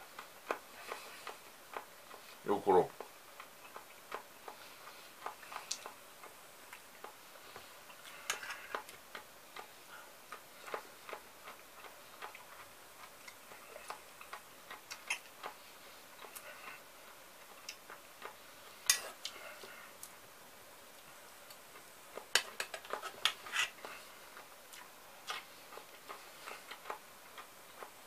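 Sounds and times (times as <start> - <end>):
chewing crunchy food: 0.0 - 20.2, 20.8 - 28.0.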